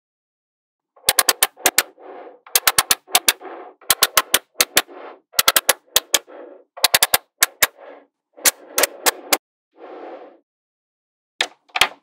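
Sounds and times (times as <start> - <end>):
magnetic balls clicking together: 1.0 - 1.9, 2.5 - 7.8.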